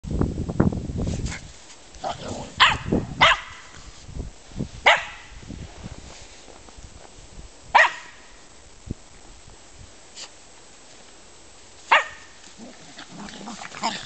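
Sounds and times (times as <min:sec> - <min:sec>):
dog barking: 0:02.6 - 0:03.6, 0:04.8 - 0:05.3, 0:07.7 - 0:08.2, 0:11.9 - 0:12.3.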